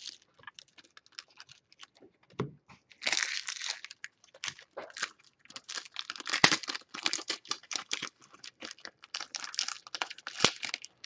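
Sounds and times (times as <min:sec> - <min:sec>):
foil wrappers crinkling and tearing: 0:03.0 - 0:11.0.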